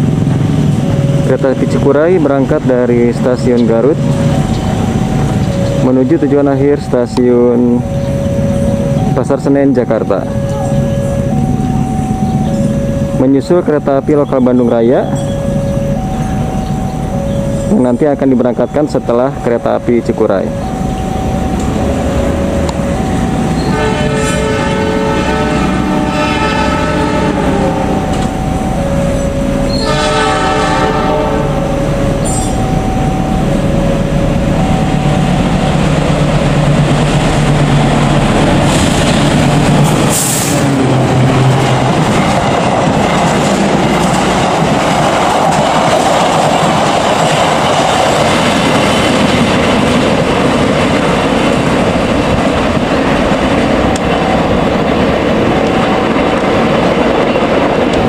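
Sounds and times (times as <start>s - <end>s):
train rumbling over track: 0.0s - 58.0s
locomotive horn blasts: 20.6s - 36.6s.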